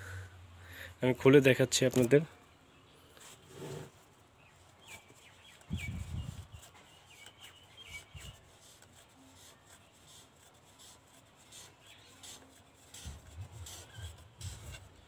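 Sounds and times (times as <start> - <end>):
plastic pipe fitting scraping: 13.0 - 15.0.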